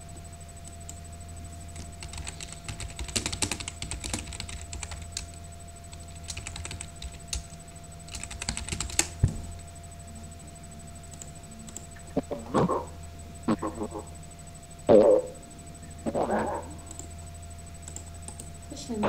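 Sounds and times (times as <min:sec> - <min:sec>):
steady background hum: 0:00.0 - 0:19.0
typing on computer keyboard: 0:01.8 - 0:09.2, 0:17.8 - 0:18.5.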